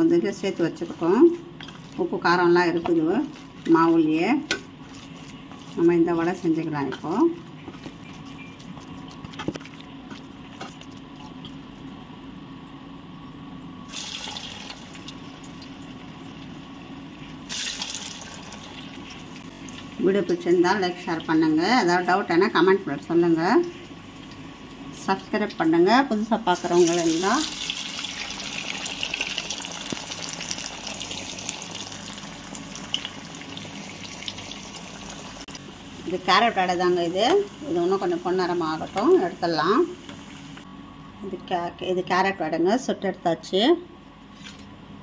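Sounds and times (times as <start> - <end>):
food deep-frying in oil: 0.0 - 40.7
food sizzling in hot oil: 13.9 - 20.0, 26.6 - 40.6.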